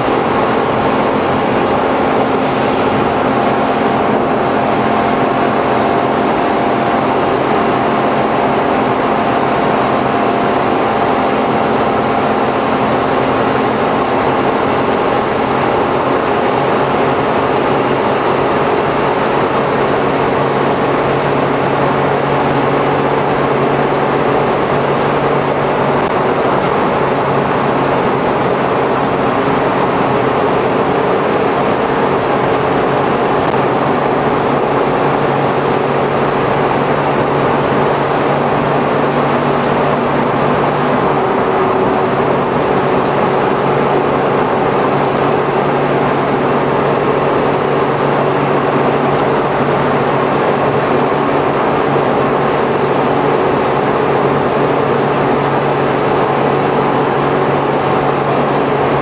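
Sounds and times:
road and tyre noise: 0:00.0 - 0:59.0
van engine droning: 0:00.0 - 0:59.0.

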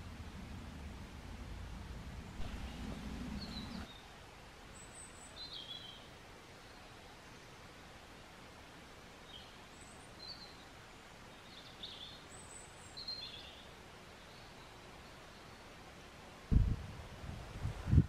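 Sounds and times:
quiet background hiss: 0:00.0 - 0:18.0
faint bird chirps: 0:02.3 - 0:07.8, 0:09.2 - 0:15.9.

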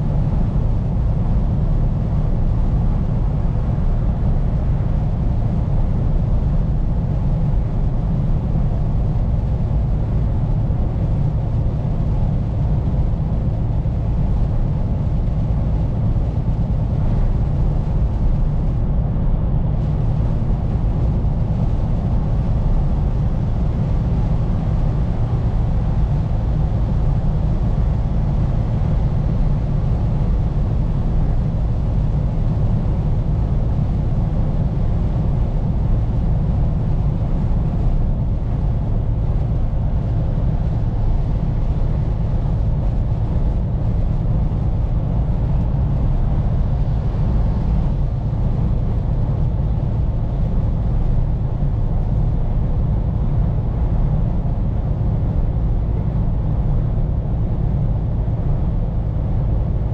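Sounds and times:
truck engine and road noise drone: 0:00.0 - 0:59.9.

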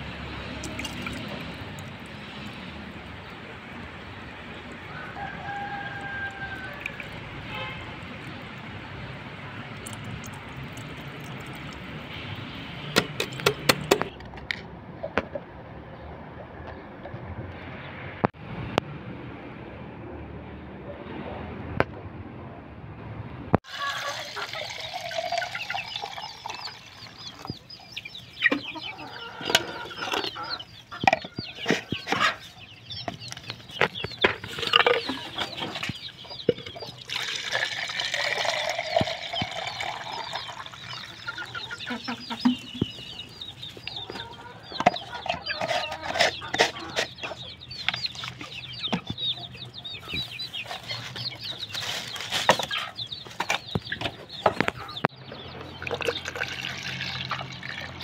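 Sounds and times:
water pouring into plastic pot: 0:00.6 - 0:02.1, 0:23.6 - 0:27.4, 0:37.0 - 0:41.2, 0:55.8 - 0:58.0
chickens clucking: 0:23.6 - 0:58.0.

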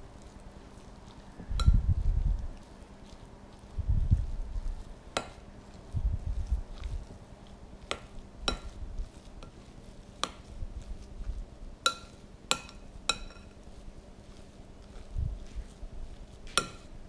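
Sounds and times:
soft stirring of mashed potatoes: 0:00.0 - 0:17.0
spoon clinking against glass bowl: 0:11.8 - 0:13.6.

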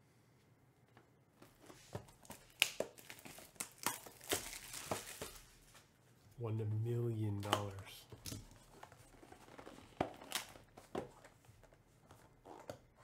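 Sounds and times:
plastic wrap tearing and crinkling: 0:02.2 - 0:05.7, 0:08.3 - 0:10.8.

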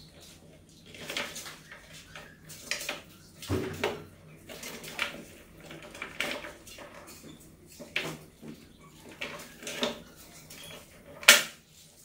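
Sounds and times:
rats scrambling on plastic: 0:00.0 - 0:12.0
knocks and rattles: 0:03.4 - 0:11.3.

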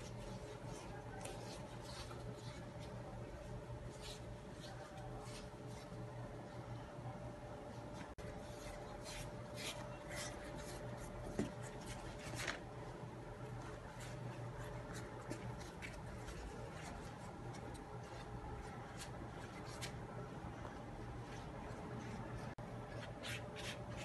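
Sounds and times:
dough sheets crinkling and rustling: 0:08.0 - 0:24.0.

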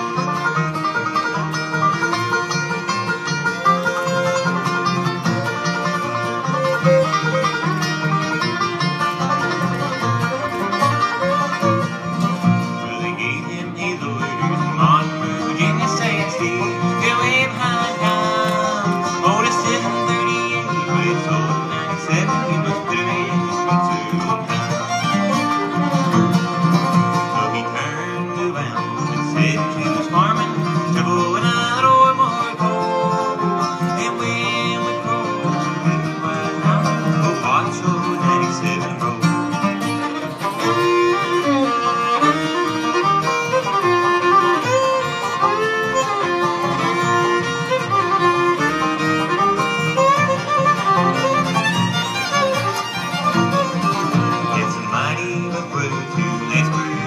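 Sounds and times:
acoustic guitar: 0:00.0 - 0:57.0
banjo: 0:00.0 - 0:57.0
fiddle: 0:00.0 - 0:57.0.

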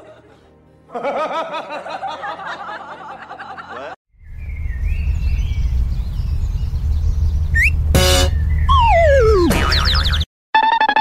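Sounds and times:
giggly laughter: 0:00.0 - 0:04.0
wind rumble on microphone: 0:04.2 - 0:08.8.

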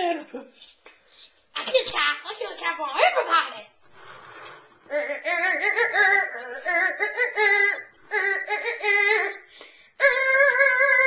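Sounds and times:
child singing: 0:04.9 - 0:11.0.

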